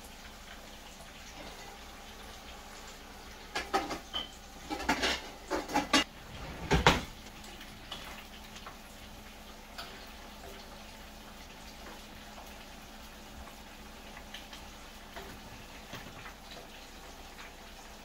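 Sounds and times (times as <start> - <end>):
fish sizzling in oil: 0.0 - 18.0
metal utensils clattering: 3.5 - 7.2
drawer pulled open: 6.2 - 7.1.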